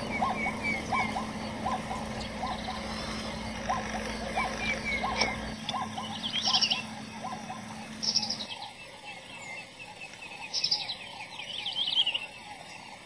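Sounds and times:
fainter lower chirps: 0.0 - 8.5
birds chirping: 0.0 - 13.0.

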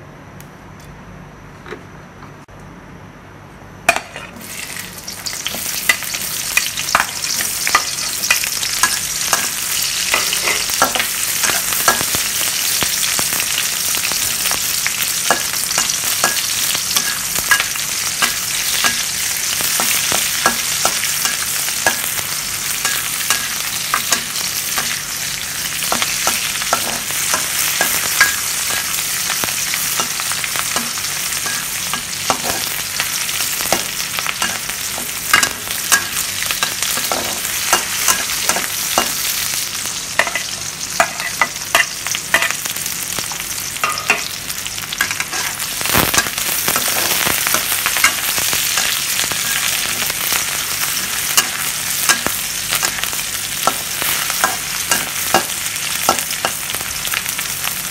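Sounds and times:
onions sizzling in oil: 3.9 - 57.9
metal spatula scraping a pan: 7.7 - 12.0, 45.0 - 50.0.

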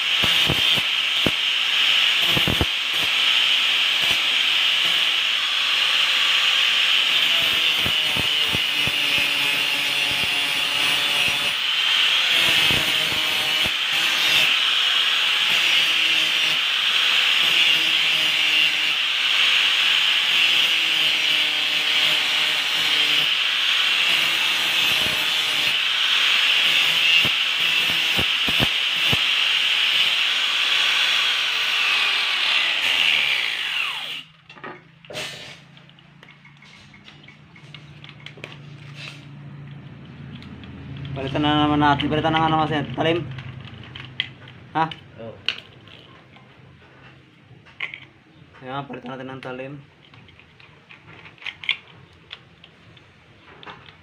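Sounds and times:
angle grinder grinding metal: 0.0 - 34.4.

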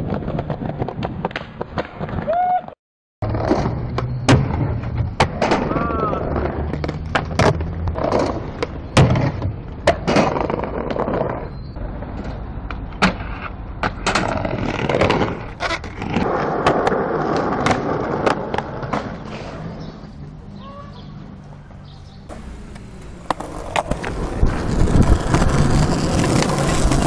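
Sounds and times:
skateboard wheels rolling on concrete: 0.0 - 27.0
skateboard clacking: 22.3 - 27.0.

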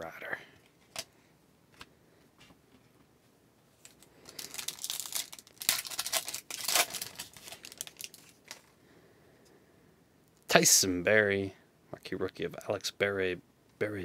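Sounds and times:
plastic wrapper tearing and crinkling: 3.8 - 8.7.

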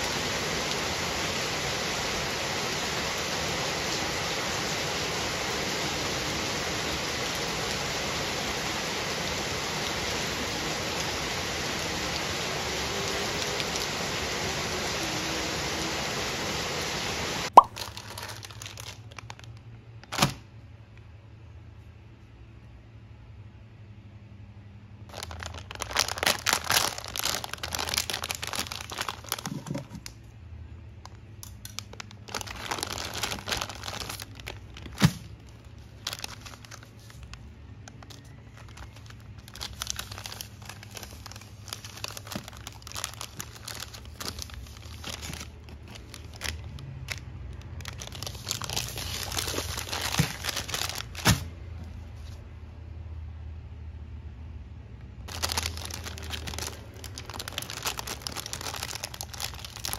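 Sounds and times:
crinkly wrapping rustling: 17.6 - 20.5, 25.1 - 30.3, 31.0 - 52.4, 55.2 - 59.9.

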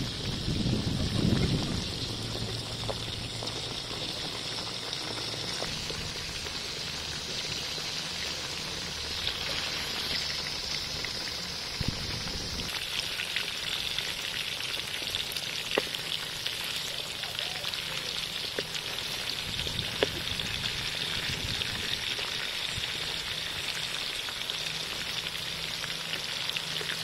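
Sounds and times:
low rumble: 0.0 - 12.8
food sizzling in oil: 0.0 - 27.0.

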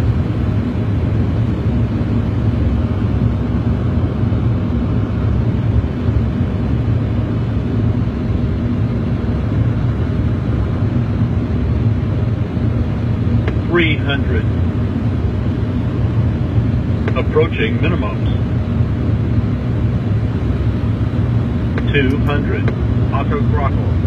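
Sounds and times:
airflow and engine rumble: 0.0 - 24.0.

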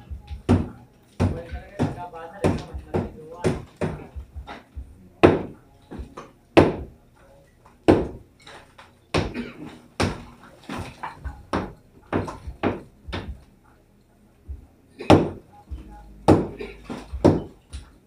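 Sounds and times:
sledgehammer striking masonry wall: 7.9 - 8.2, 16.3 - 17.6.

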